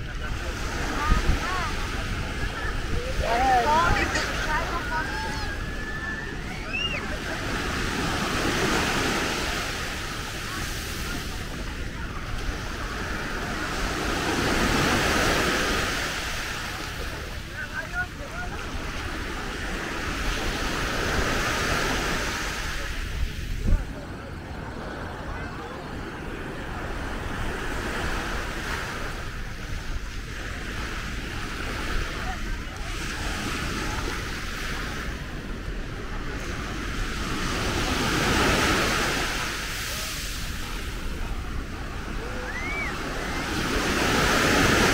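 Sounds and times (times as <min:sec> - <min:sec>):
wind rumble on microphone: 0:00.0 - 0:15.9, 0:16.5 - 0:39.6
waves washing up a sandy beach: 0:00.0 - 0:44.9.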